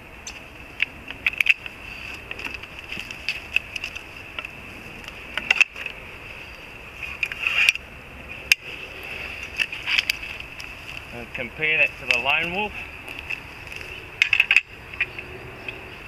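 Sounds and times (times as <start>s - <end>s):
metal climbing sticks clicking: 0.2s - 6.0s, 9.4s - 15.8s.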